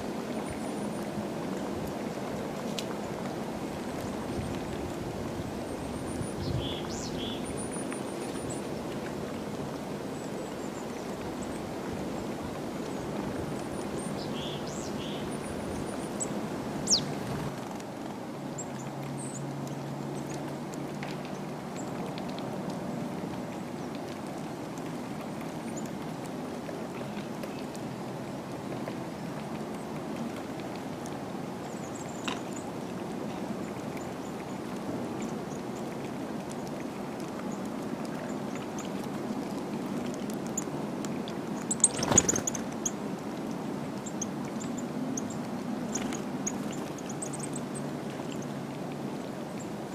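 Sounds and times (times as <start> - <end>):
small birds calling: 6.1 - 8.6, 12.9 - 17.4, 41.6 - 43.0, 44.0 - 48.5.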